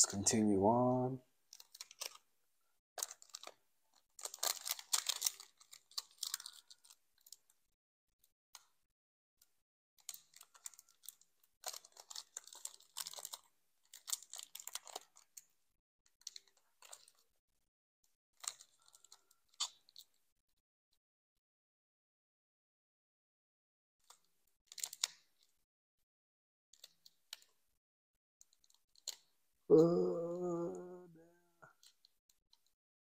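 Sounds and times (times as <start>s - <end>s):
foil wrapper crinkling: 1.5s - 2.2s, 3.0s - 7.6s, 10.0s - 15.4s, 16.2s - 17.4s, 18.4s - 20.2s, 24.1s - 25.5s.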